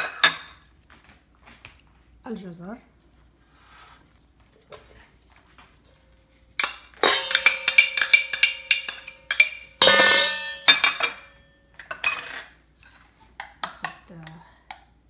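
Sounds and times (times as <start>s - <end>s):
utensil clinking in metal bowl: 6.6s - 14.4s.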